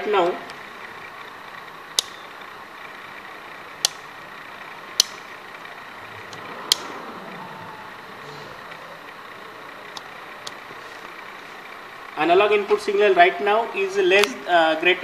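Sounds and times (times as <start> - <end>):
steady low hiss: 0.0 - 15.0
sharp clicks of test equipment: 0.1 - 7.0, 14.1 - 14.5.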